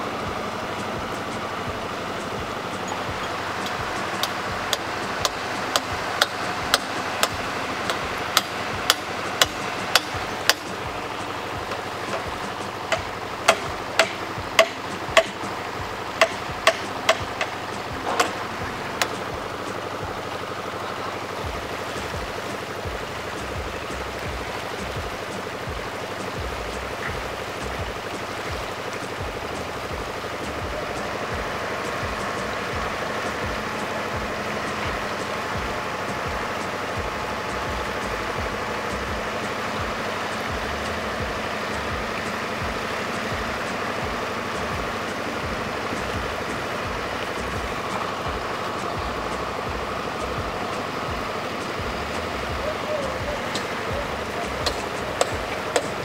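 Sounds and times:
steady background rush: 0.0 - 56.0
hammer striking steel: 3.0 - 10.9, 11.6 - 15.5, 16.1 - 19.4.

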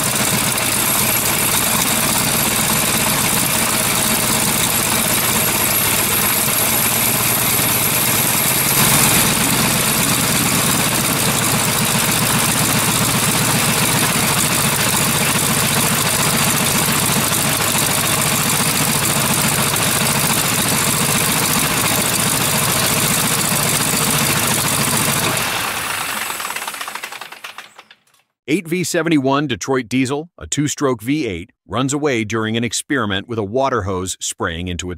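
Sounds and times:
radial aircraft engine running: 0.0 - 27.8.

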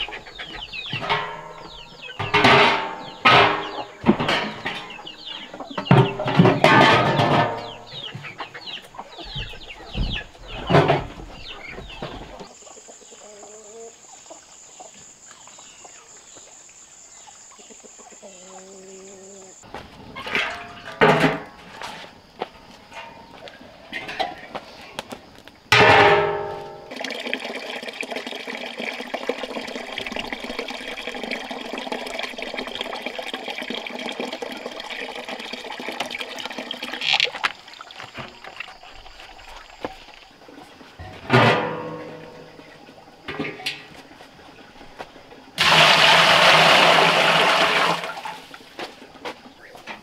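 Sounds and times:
tap water running into bucket: 26.8 - 39.9, 45.6 - 48.4.

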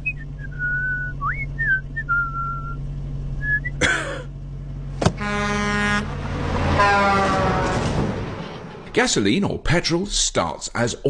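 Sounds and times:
person whistling: 0.0 - 2.8, 3.4 - 3.8
car engine idling: 0.0 - 9.4
sharp thump: 5.0 - 5.2.

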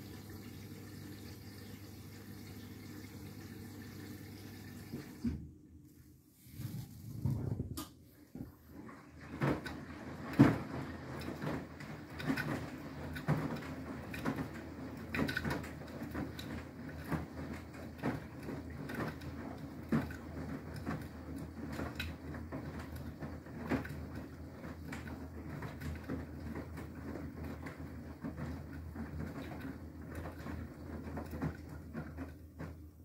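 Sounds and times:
washing machine motor hum: 0.0 - 33.0
wet laundry splashing and thudding: 8.4 - 33.0
knocks in washing machine drum: 9.3 - 33.0.

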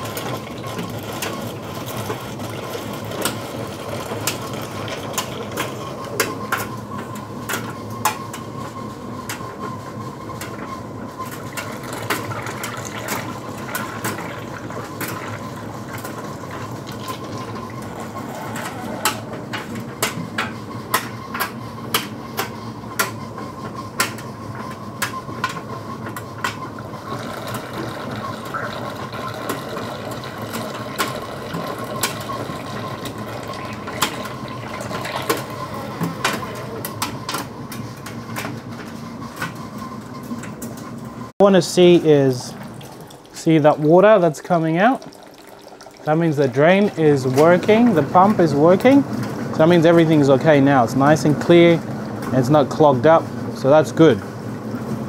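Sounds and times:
dryer humming: 0.0 - 55.0
water trickling and splashing: 42.5 - 47.4.

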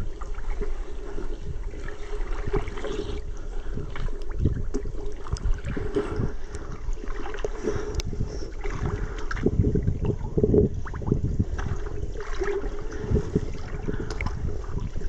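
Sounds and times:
water lapping and sloshing: 0.0 - 15.0
small splashes: 10.8 - 15.0.

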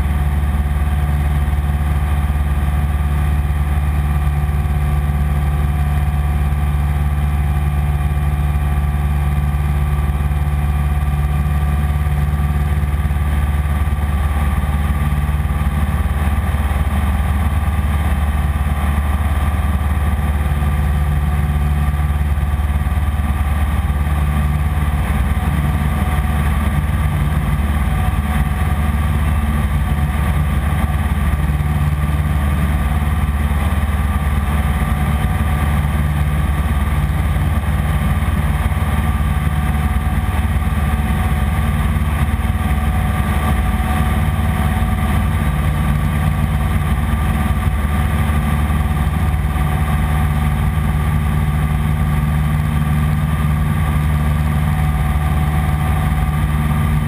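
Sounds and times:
small plane engine droning: 0.0 - 57.0.

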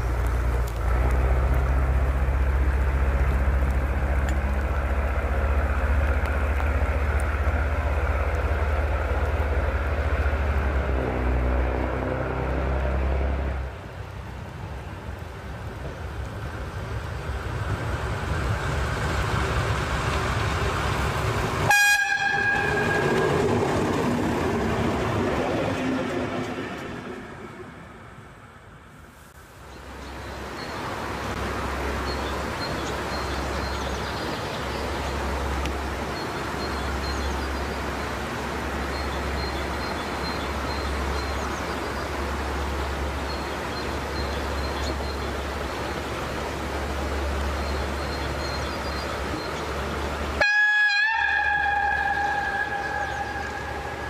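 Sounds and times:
heavy low rumble: 0.0 - 21.7, 51.3 - 54.0
diesel railbus passing: 0.0 - 54.0
train horn toot: 21.7 - 23.6, 50.4 - 54.0.

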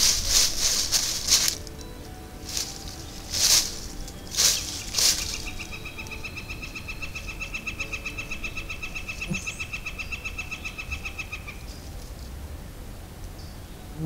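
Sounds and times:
animal trill: 2.6 - 11.7.

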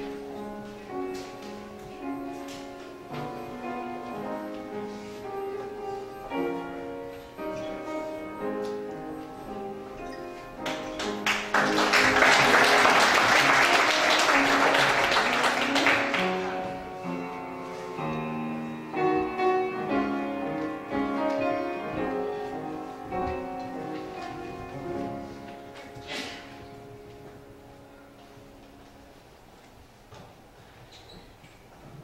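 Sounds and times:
piano music: 0.0 - 29.7
congregation applauding: 10.6 - 16.9.

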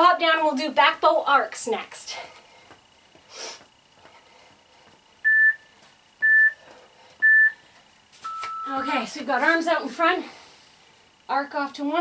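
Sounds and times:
timer beeping: 5.2 - 6.6, 7.2 - 7.6, 8.2 - 9.0.

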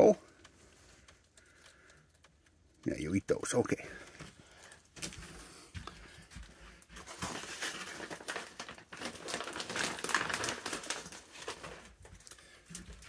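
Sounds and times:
packaging crinkling: 6.9 - 13.0.

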